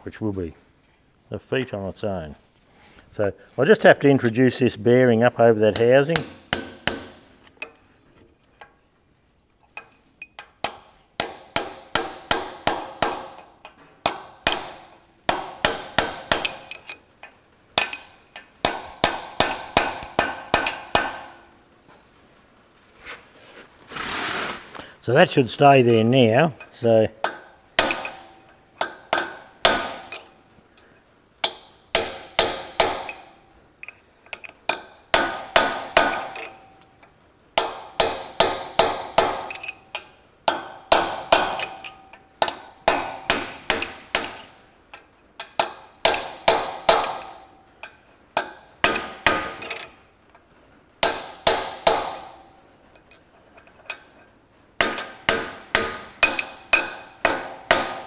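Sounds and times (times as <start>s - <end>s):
hammer striking steel: 5.8s - 7.9s, 9.8s - 21.5s, 25.9s - 30.5s, 31.4s - 33.4s, 34.7s - 36.9s, 37.6s - 50.1s, 51.0s - 54.1s, 54.8s - 58.0s.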